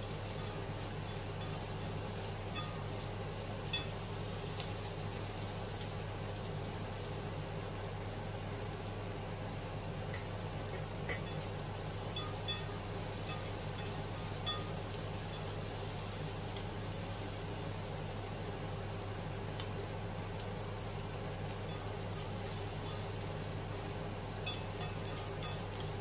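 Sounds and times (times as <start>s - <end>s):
vegetables frying in oil: 0.0s - 26.0s
chopsticks clicking against pan: 10.1s - 11.5s, 24.4s - 26.0s.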